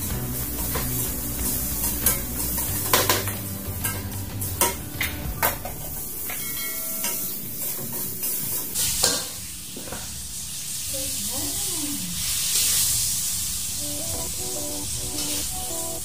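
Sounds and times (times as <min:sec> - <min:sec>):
food sizzling: 0:00.0 - 0:16.0
metal spatula scraping a wok: 0:00.3 - 0:04.8
clinking ringing note: 0:06.3 - 0:07.3.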